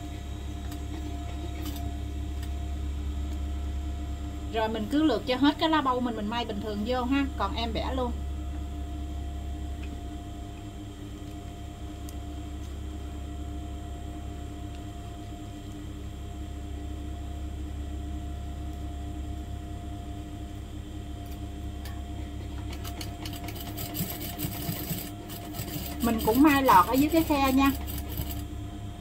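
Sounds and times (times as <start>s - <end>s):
electric sewing machine running: 22.2s - 28.6s.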